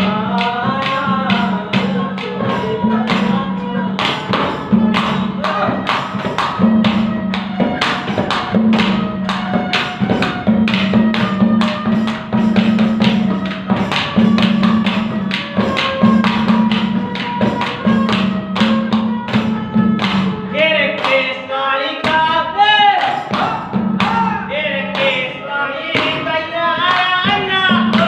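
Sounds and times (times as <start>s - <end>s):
man singing: 0.0s - 5.9s, 20.5s - 28.0s
hand drum beating: 0.0s - 21.4s, 22.0s - 28.0s
harmonium notes: 0.0s - 28.0s.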